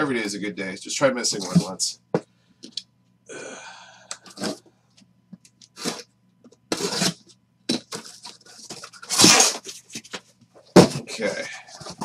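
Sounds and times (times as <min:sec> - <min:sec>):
cardboard boxes scraping: 0:06.7 - 0:07.2
cardboard boxes knocking and rustling: 0:07.7 - 0:12.0.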